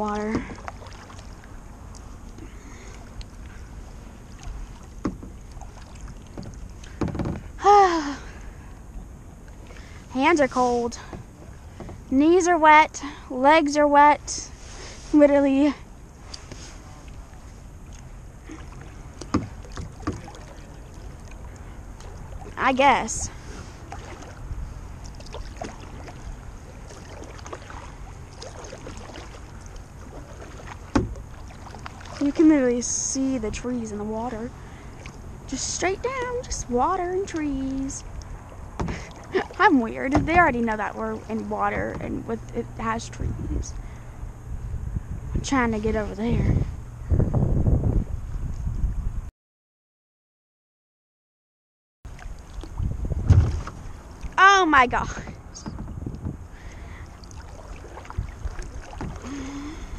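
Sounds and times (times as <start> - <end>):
paddle splashing in water: 0.0 - 7.6, 16.2 - 33.7, 34.3 - 36.5, 37.1 - 42.2, 52.1 - 59.9
wind rumble on microphone: 0.0 - 49.3, 52.1 - 59.9.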